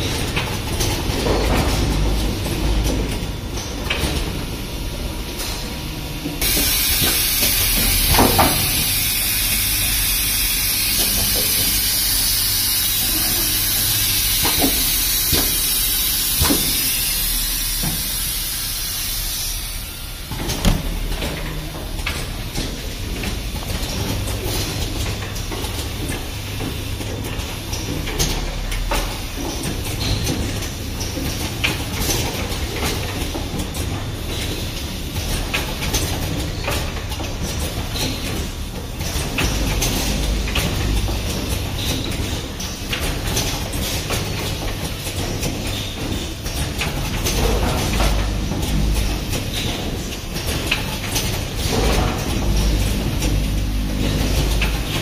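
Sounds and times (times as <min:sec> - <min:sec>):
machine humming: 0:00.0 - 0:28.0, 0:46.6 - 0:55.0
loud steady hiss: 0:06.4 - 0:20.3.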